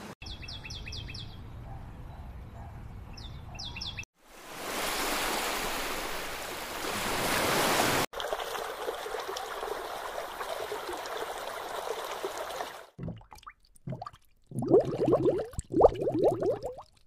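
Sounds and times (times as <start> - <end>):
wind: 0.0 - 13.1
lake water lapping on shore: 4.4 - 13.2.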